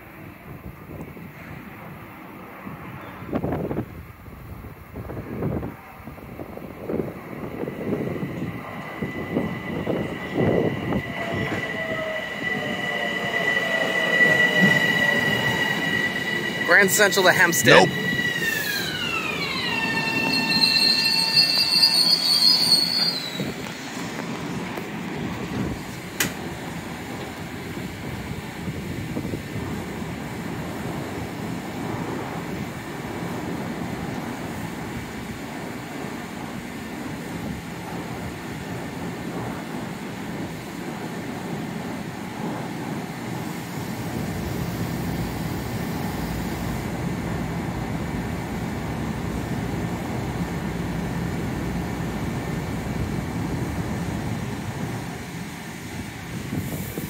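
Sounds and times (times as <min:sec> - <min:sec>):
standing train humming: 0:03.6 - 0:57.0
high brake squeal: 0:08.9 - 0:23.6
electric train motor whine: 0:09.0 - 0:23.3.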